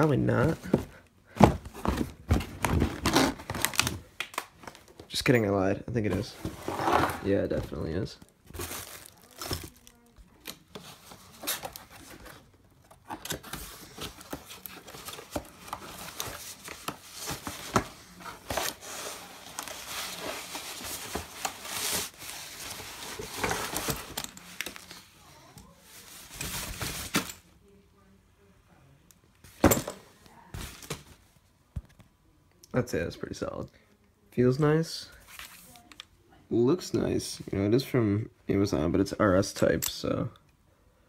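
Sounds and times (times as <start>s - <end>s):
plastic wrap crinkling and tearing: 8.5s - 10.4s.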